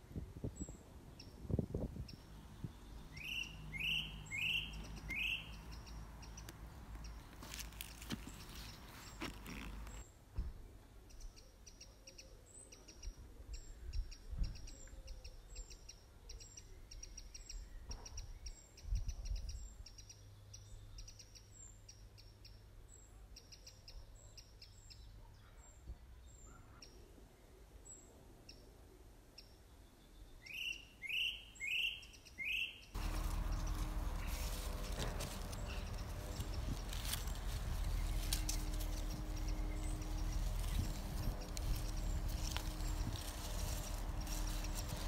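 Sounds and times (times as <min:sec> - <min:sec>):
small birds chirping: 0:00.5 - 0:10.1, 0:29.4 - 0:45.0.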